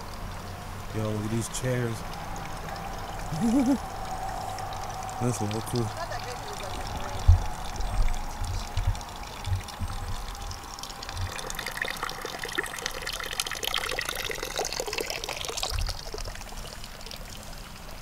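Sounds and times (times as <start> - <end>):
fountain water trickling and splashing: 0.0 - 18.0
low thumps on microphone: 7.2 - 10.6.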